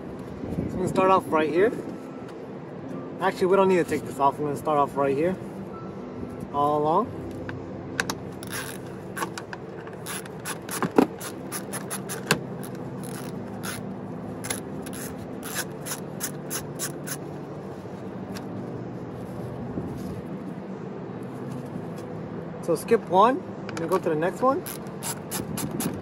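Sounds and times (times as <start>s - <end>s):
ratchet wrench clicking: 8.4s - 9.4s, 10.0s - 13.8s, 14.4s - 17.2s, 24.6s - 26.0s.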